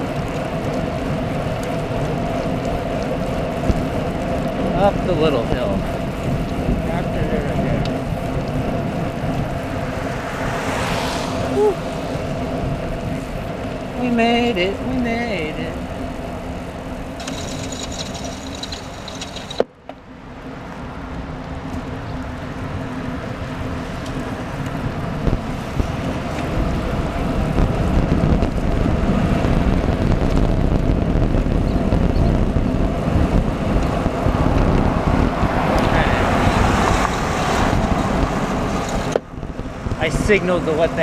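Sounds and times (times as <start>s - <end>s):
wind on microphone: 0.0s - 14.4s, 24.1s - 41.0s
bicycle tyres on wet pavement: 0.0s - 41.0s.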